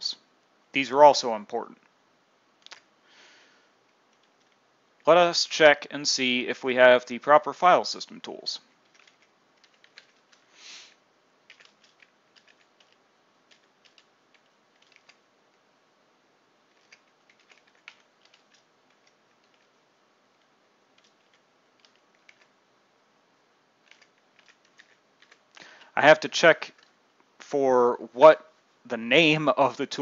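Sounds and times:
faint keyboard keystrokes: 3.9s - 4.6s, 8.8s - 10.5s, 11.5s - 15.2s, 16.7s - 22.5s, 23.8s - 25.9s, 26.7s - 27.0s
soft puff of noise: 10.5s - 11.0s.

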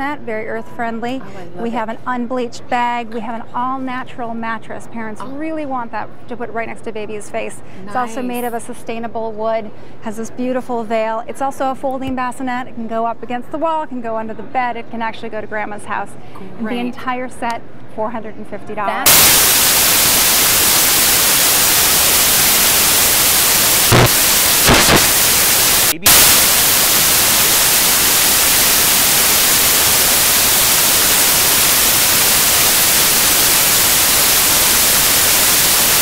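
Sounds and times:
white noise static hiss: 19.0s - 36.0s
short pops: 19.1s - 34.7s.

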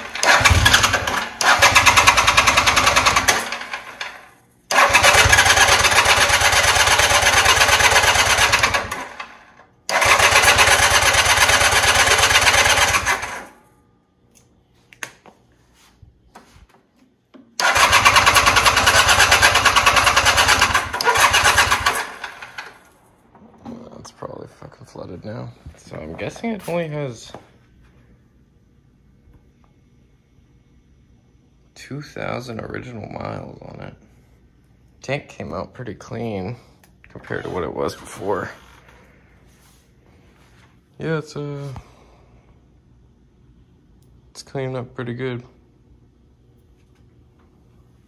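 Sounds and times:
electric starter cranking engine: 0.0s - 13.5s, 17.6s - 22.9s.

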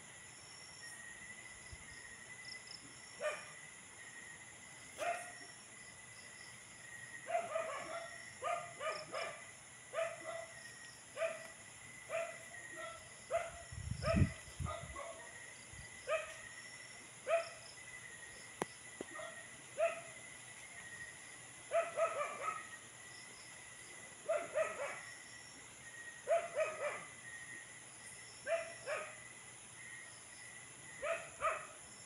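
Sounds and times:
dog barking: 3.2s - 3.6s, 5.0s - 5.4s, 7.3s - 15.4s, 16.1s - 16.4s, 17.3s - 17.6s, 19.1s - 20.2s, 21.7s - 22.8s, 24.2s - 25.1s, 26.3s - 27.1s, 28.5s - 29.2s, 31.0s - 31.8s.

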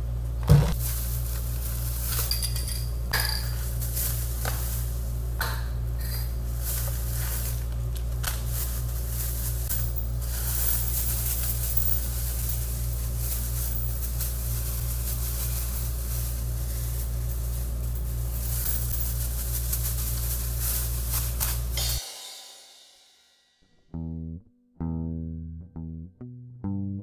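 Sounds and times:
steady low hum: 0.0s - 22.0s
paper packaging crinkling and tearing: 6.5s - 18.2s, 19.1s - 21.8s.

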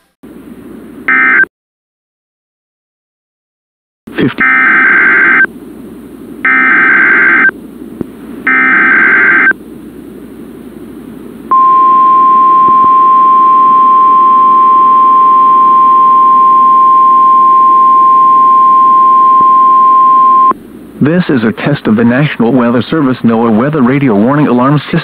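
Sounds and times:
steady alarm tone: 6.4s - 7.5s, 8.5s - 9.5s, 11.5s - 20.5s
warbling data tone bursts: 8.5s - 9.5s, 11.5s - 20.5s.

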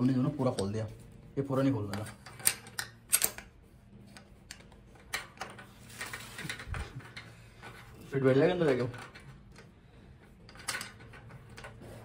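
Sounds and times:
metal parts clicking and tapping: 1.8s - 3.5s, 4.1s - 7.9s, 8.5s - 9.7s, 10.3s - 11.8s.

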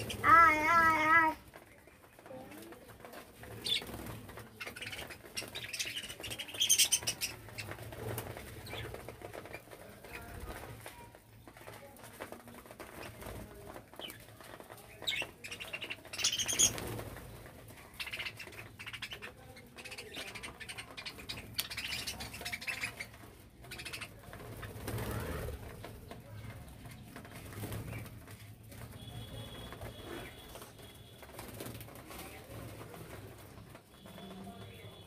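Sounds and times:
wings flapping: 0.0s - 35.0s
budgerigars chattering and chirping: 4.6s - 7.8s, 17.9s - 24.2s.

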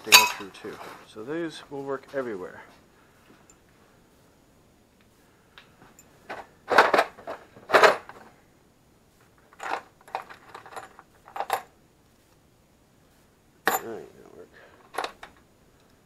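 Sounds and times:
metal bolts clinking and rattling: 0.0s - 0.8s, 9.4s - 11.7s, 13.7s - 14.0s, 14.8s - 15.5s.

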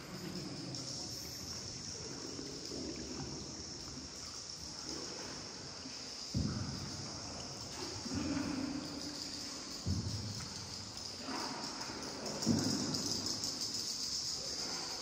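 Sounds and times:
water sloshing and trickling: 0.0s - 15.0s
thump: 6.3s - 6.8s, 9.8s - 10.6s, 12.4s - 13.1s.

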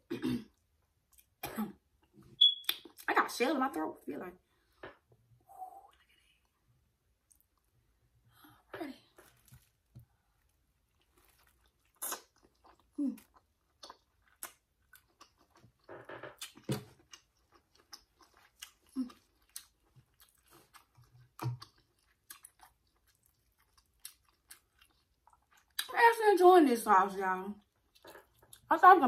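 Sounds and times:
lip smacks: 2.5s - 3.1s, 11.9s - 12.8s
wet chewing: 9.2s - 25.9s.

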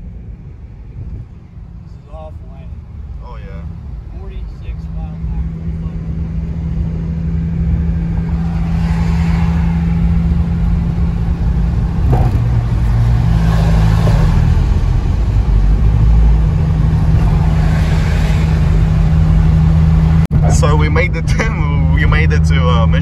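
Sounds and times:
car engine drone: 0.0s - 23.0s
road and tyre rumble: 0.0s - 23.0s
car bump: 11.9s - 13.0s.

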